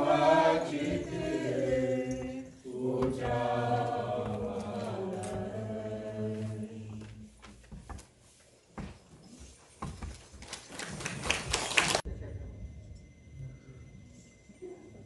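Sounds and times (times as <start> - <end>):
group singing a slow hymn: 0.0 - 7.5.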